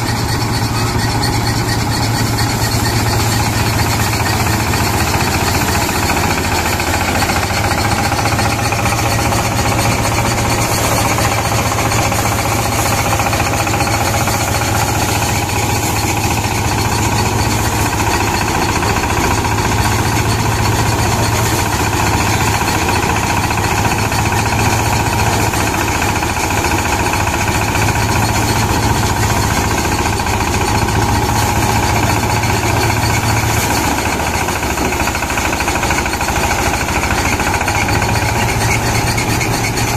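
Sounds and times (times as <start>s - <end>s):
thresher mechanical rattle: 0.0s - 39.9s.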